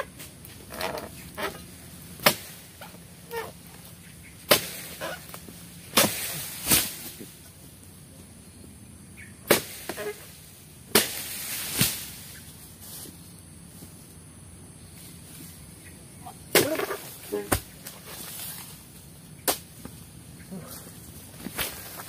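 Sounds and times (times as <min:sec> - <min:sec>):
pole chopping palm frond stalks: 0:00.0 - 0:07.5, 0:09.4 - 0:12.4, 0:16.4 - 0:18.8, 0:19.4 - 0:20.0, 0:21.3 - 0:22.0.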